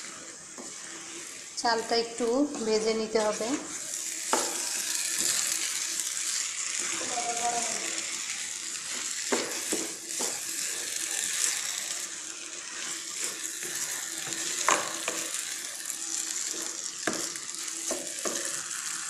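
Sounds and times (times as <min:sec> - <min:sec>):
rice sizzling in oil: 0:00.0 - 0:19.0
wooden spatula knocking pan: 0:09.3 - 0:10.4, 0:17.0 - 0:18.5.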